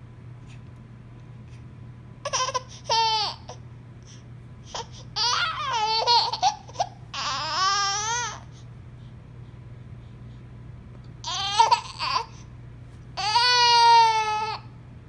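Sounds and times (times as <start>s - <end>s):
baby fussing and whining: 2.2s - 8.7s, 11.2s - 12.5s, 13.2s - 14.6s.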